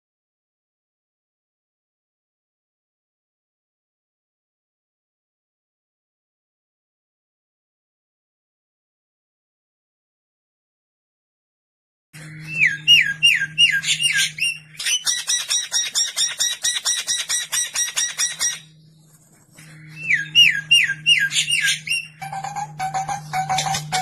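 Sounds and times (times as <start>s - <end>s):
songbird singing harsh phrases: 12.3s - 18.8s, 19.8s - 24.0s
down-slurred bird whistles: 12.5s - 18.7s, 20.0s - 24.0s.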